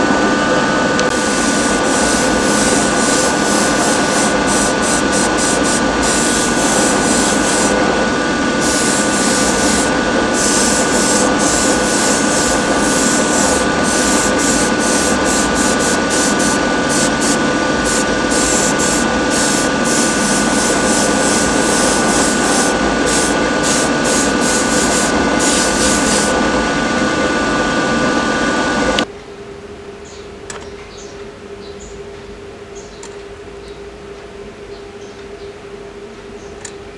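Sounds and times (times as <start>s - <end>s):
motor hum: 0.0s - 29.0s
paint spray hissing: 1.1s - 7.8s, 8.6s - 26.4s.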